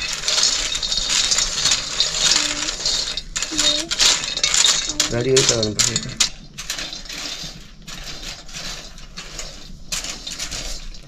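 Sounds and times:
nuts rattling in iron wok: 0:00.0 - 0:11.0.

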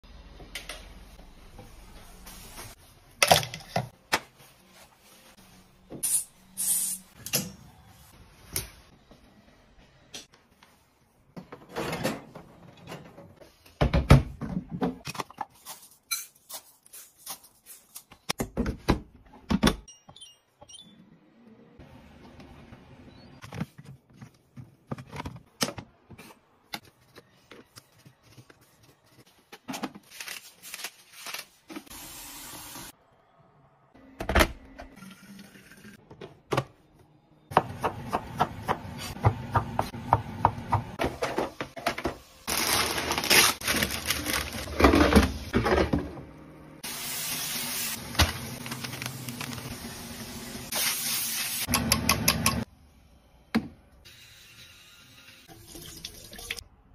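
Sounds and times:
baking paper crinkling: 0:26.9 - 0:31.9, 0:42.5 - 0:45.2, 0:47.9 - 0:50.0.

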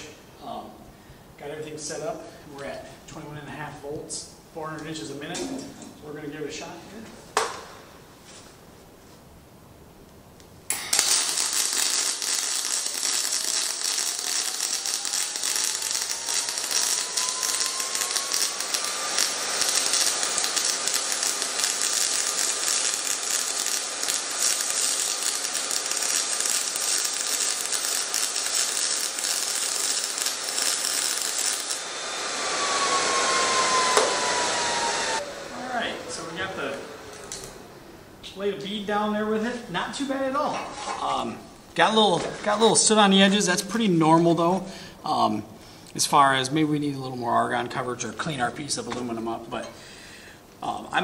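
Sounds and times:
hiss with falling whine: 0:10.7 - 0:40.1
welding arc hissing: 0:10.7 - 0:40.1.

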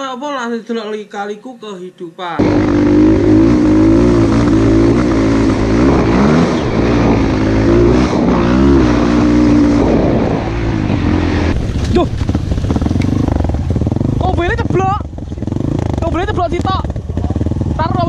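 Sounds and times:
motorcycle engine revving: 0:02.4 - 0:18.0.

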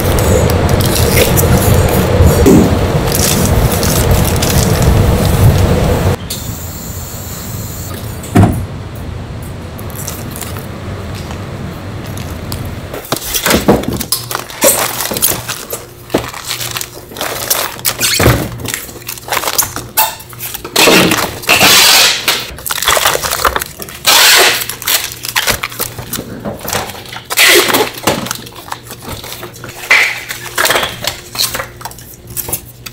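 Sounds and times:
plastic packets crinkling: 0:03.1 - 0:05.6, 0:13.1 - 0:21.6, 0:22.5 - 0:32.9.

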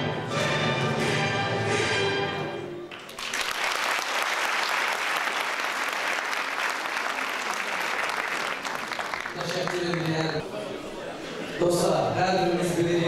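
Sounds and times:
audience applauding: 0:02.9 - 0:10.5.

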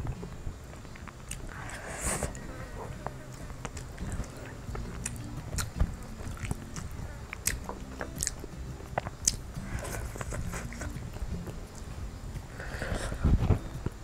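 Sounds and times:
person chewing and biting food: 0:03.1 - 0:13.3.

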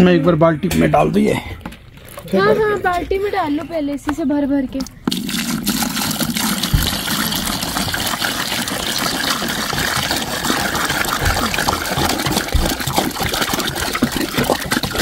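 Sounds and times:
water pouring into plastic bucket: 0:01.6 - 0:03.0, 0:04.9 - 0:15.0.

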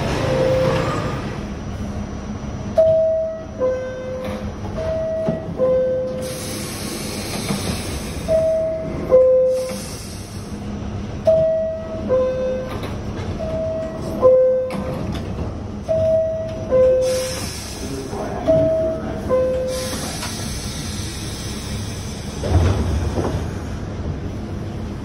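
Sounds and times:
hiss: 0:06.2 - 0:08.3, 0:09.6 - 0:10.5, 0:17.0 - 0:18.1, 0:19.7 - 0:22.4.

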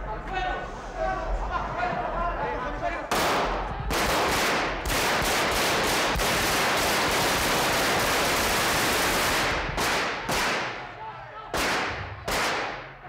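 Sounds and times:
automatic gunfire: 0:03.1 - 0:10.8, 0:11.6 - 0:12.9.

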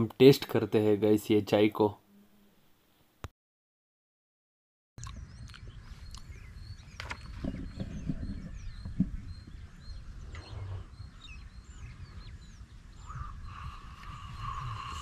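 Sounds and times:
small birds chirping: 0:05.0 - 0:15.0.

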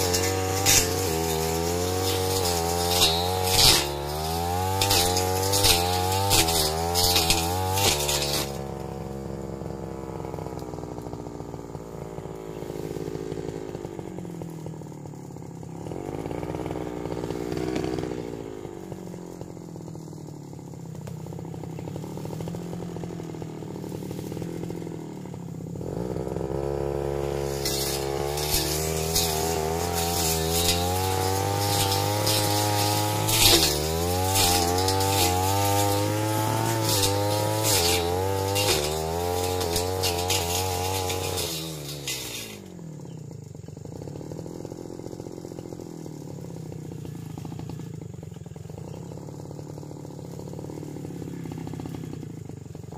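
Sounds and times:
cutting head ticking on stems: 0:00.0 - 0:08.9, 0:27.5 - 0:42.5
brush cutter engine running: 0:00.0 - 0:52.9.

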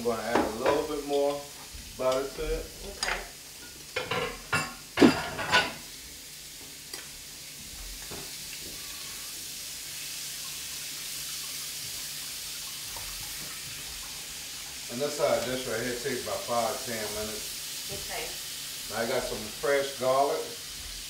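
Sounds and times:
food sizzling in butter: 0:00.0 - 0:21.0
tongs knocking and scraping pan: 0:00.3 - 0:05.8.

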